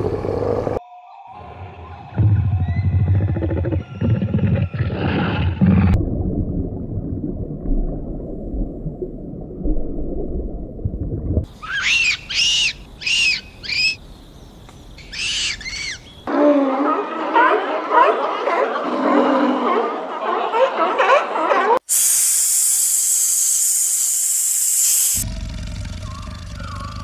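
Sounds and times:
low underwater rush: 2.2s - 11.6s
low growling rumble: 25.2s - 27.0s.

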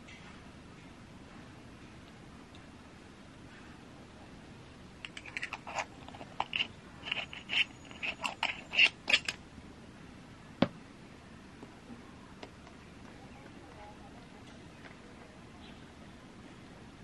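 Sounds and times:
screw cap scraping clicks: 5.0s - 9.4s.

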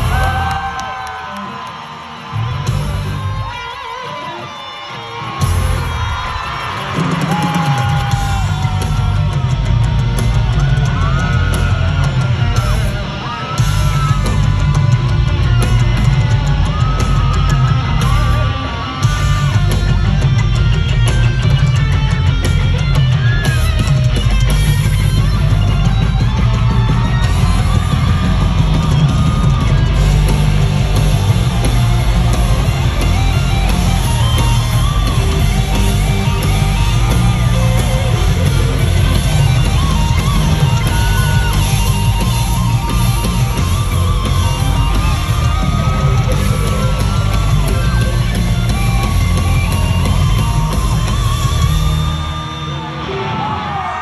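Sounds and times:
live rock music: 0.0s - 54.0s.

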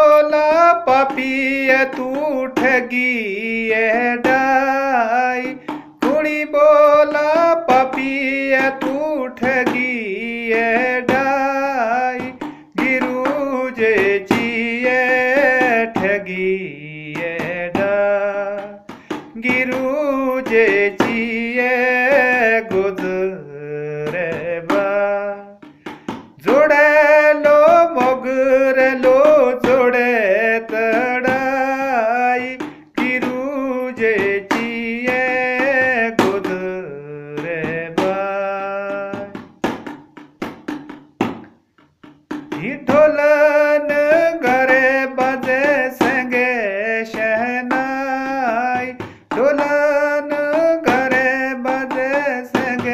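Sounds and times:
man singing solo: 0.0s - 25.7s, 26.4s - 39.4s, 42.5s - 52.9s
singer breathing: 5.5s - 6.0s, 12.4s - 12.8s, 18.8s - 19.4s, 25.6s - 26.4s, 32.6s - 33.0s, 49.0s - 49.3s.

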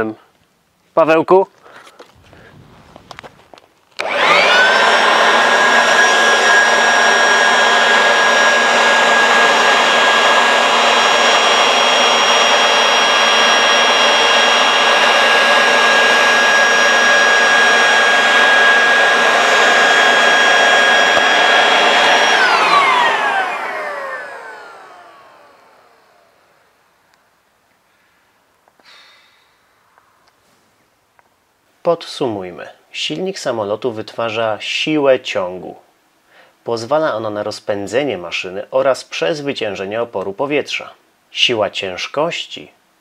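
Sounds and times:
electric air blower whining: 2.0s - 26.7s.

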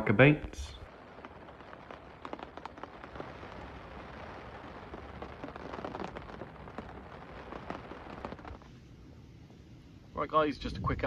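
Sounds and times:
rain falling on a lake: 0.0s - 11.0s
raindrops ticking: 0.2s - 8.7s.

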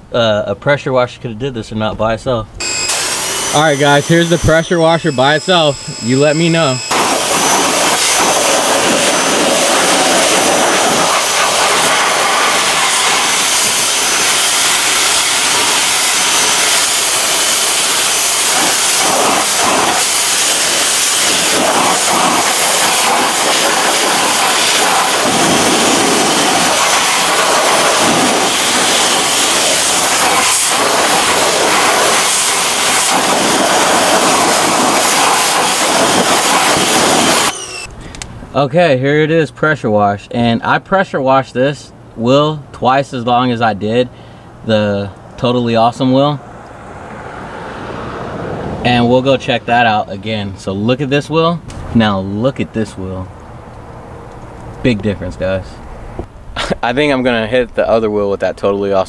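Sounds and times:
pressure washer spraying wheel: 2.6s - 37.9s.

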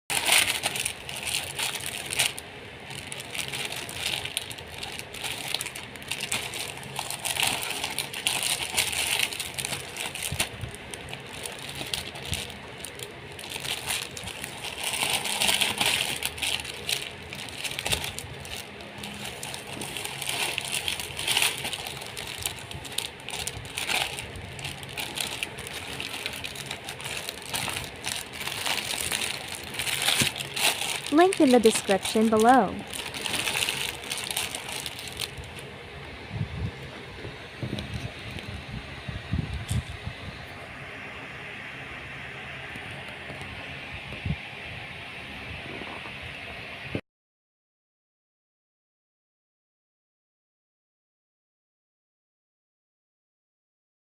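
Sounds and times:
plastic packaging crinkling: 0.1s - 35.7s.

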